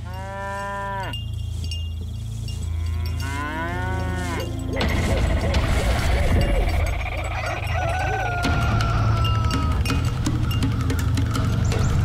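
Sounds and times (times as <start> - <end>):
cow mooing: 0.0 - 1.2, 2.5 - 4.9.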